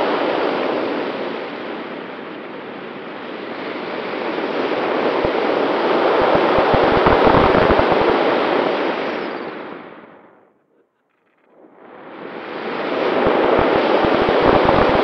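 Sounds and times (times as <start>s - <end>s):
wind buffeting microphone: 4.8s - 8.4s, 13.1s - 15.0s
wind rushing: 13.1s - 15.0s.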